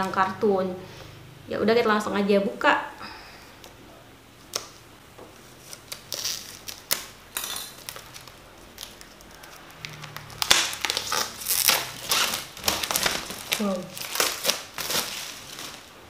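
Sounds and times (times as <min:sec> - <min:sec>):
plastic wrap crinkling: 0:05.4 - 0:16.0.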